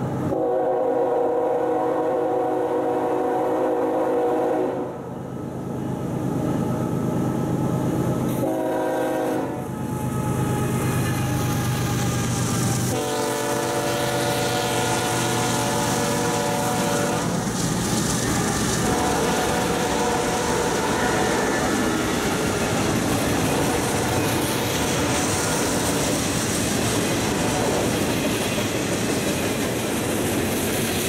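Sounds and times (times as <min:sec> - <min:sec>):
train rumble: 0:00.0 - 0:31.0
locomotive air horn blasts: 0:00.3 - 0:05.0, 0:08.3 - 0:09.8, 0:12.8 - 0:17.4, 0:18.4 - 0:21.7, 0:24.8 - 0:26.0
wheels clicking on rails: 0:14.9 - 0:31.0.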